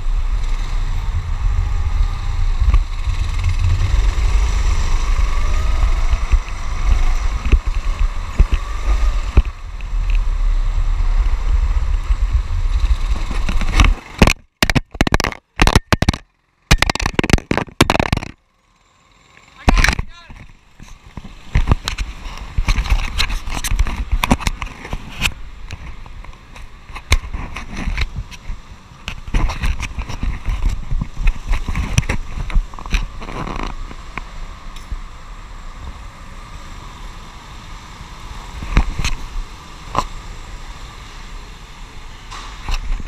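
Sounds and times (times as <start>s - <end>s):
low rumble: 0.0s - 14.0s
camera handling knocks and rattles: 13.4s - 18.4s.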